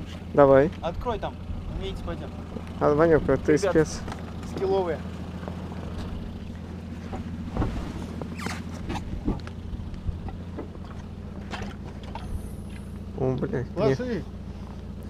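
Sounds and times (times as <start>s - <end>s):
vehicle engine idling: 0.0s - 15.0s
knocks and clatter of gear: 3.9s - 13.6s.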